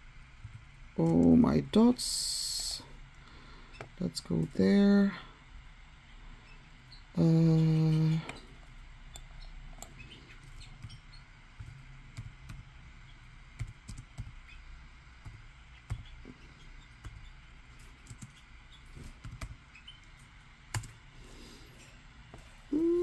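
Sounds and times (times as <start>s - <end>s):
laptop keyboard typing: 9.2s - 14.6s, 15.2s - 19.7s, 20.7s - 21.0s.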